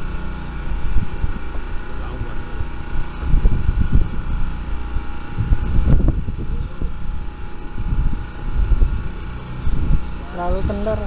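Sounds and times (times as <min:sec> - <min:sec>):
boat engine humming: 0:00.0 - 0:11.0
low thumps and rumbles: 0:00.0 - 0:11.0.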